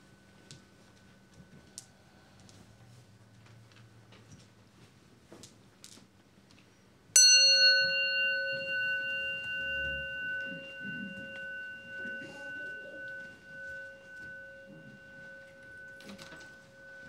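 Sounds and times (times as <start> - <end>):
bowl bell ringing: 7.2 - 17.0.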